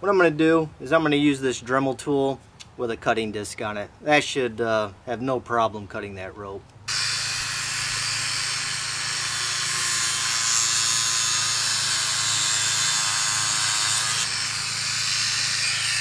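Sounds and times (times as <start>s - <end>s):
rotary tool high-pitched whine: 6.9s - 16.0s.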